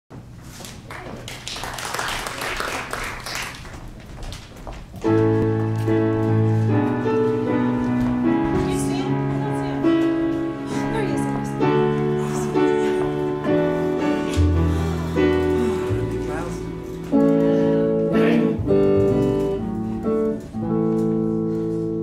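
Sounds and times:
audience applause: 0.9 - 4.0
theatre band with keyboard: 5.0 - 22.0.

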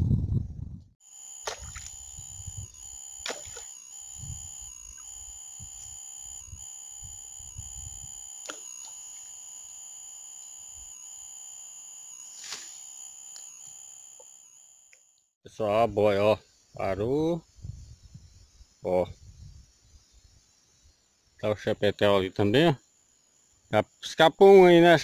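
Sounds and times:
high-pitched drone: 1.3 - 14.3.

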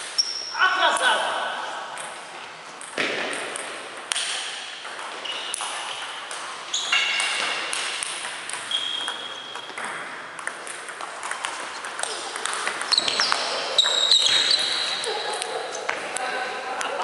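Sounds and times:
balls bouncing on tables: 1.9 - 17.0
table tennis balls clicking off paddles: 1.9 - 17.0
high squeaks: 5.1 - 7.4, 8.7 - 9.8, 12.8 - 15.1.

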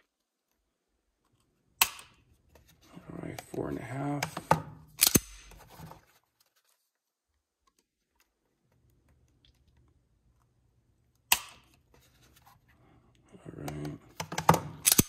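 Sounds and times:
metallic pistol click: 1.8 - 2.1, 5.0 - 5.5, 11.3 - 11.6, 14.8 - 15.0.

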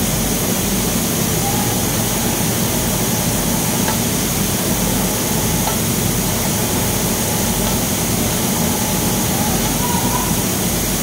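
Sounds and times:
shipyard machinery din: 0.0 - 11.0.

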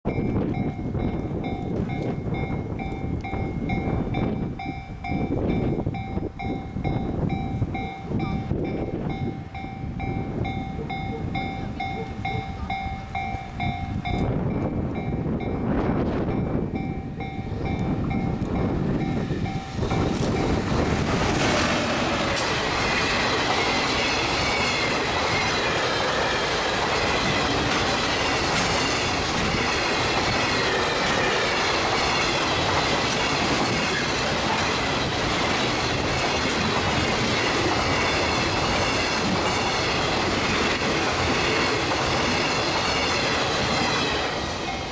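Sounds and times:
freight train passing: 0.0 - 44.9
level crossing bell ringing: 0.1 - 15.6
wheels clattering over rail joints: 18.1 - 44.9.

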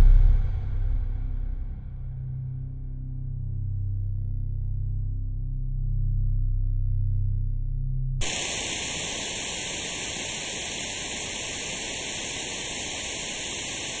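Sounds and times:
static hiss: 8.2 - 14.0.

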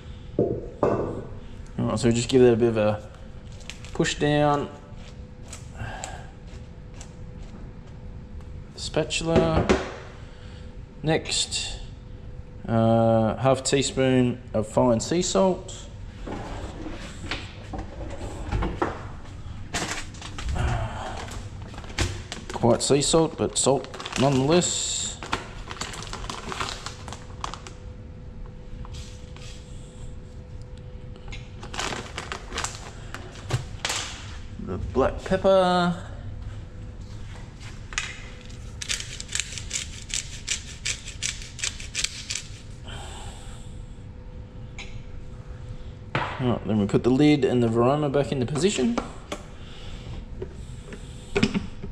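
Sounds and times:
pepper mill grinding: 38.8 - 42.6.

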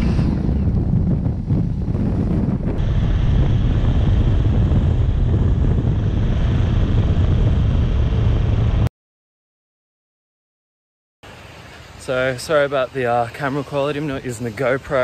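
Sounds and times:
engine and tyres rumbling on sand: 0.0 - 8.9
wind buffeting microphone: 0.0 - 8.9.

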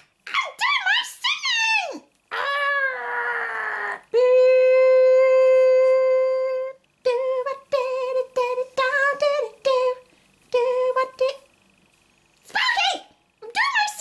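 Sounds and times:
puppet voice humming: 2.3 - 10.0.

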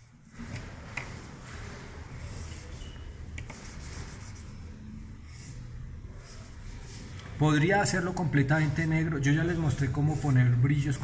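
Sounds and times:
marker rubbing across paper: 1.6 - 7.2, 9.5 - 10.6.

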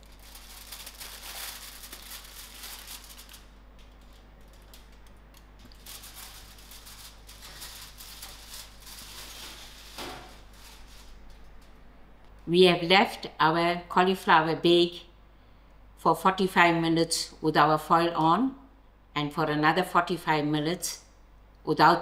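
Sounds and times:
aluminium foil crackling: 0.0 - 11.8.

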